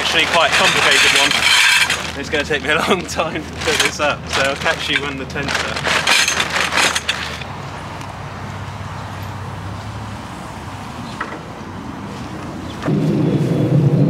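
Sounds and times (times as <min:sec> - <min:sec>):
plastic bag rustling: 0:00.0 - 0:07.5.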